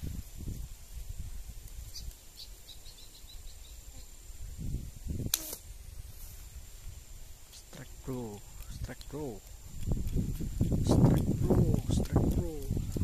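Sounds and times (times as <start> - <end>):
slingshot snap: 5.2 - 5.7.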